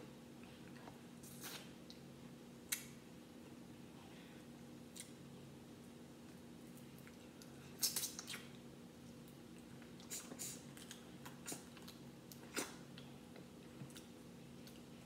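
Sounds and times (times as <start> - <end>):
faint electrical hum: 0.0 - 15.0
chewing: 9.3 - 14.9.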